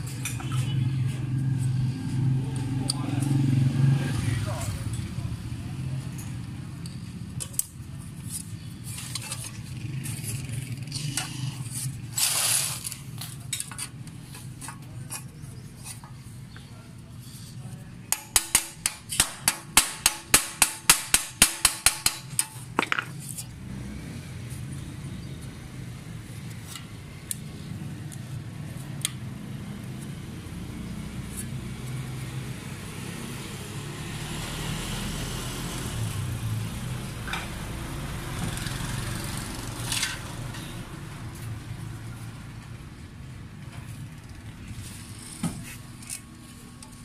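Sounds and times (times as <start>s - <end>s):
hammer striking metal plate: 18.1s - 22.6s.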